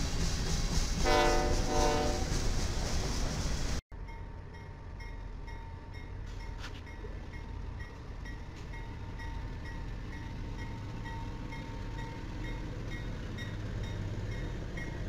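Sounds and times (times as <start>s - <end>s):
diesel locomotives rumbling: 0.0s - 15.0s
train horn: 1.0s - 2.4s.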